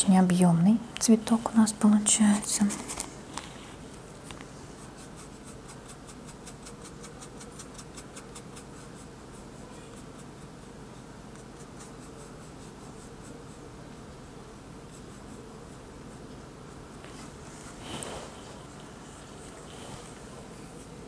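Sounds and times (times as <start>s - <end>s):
low background hum: 0.0s - 21.0s
paintbrush scratching on canvas: 4.6s - 13.8s, 14.8s - 21.0s.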